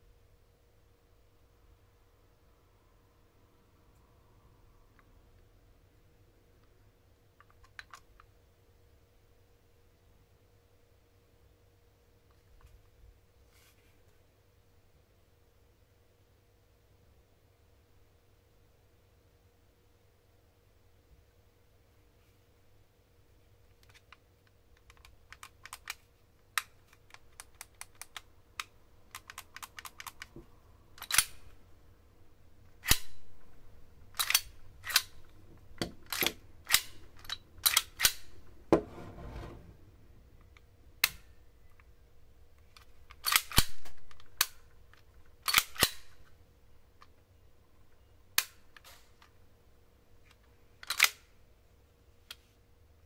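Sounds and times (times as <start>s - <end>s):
handling clicks: 26.6s - 30.4s, 31.0s - 31.6s, 32.7s - 38.6s
pistol slide racking clacks: 31.0s - 31.6s, 32.8s - 38.5s, 42.8s - 44.7s, 45.4s - 46.2s, 50.8s - 51.2s
slide rasping: 38.5s - 39.8s.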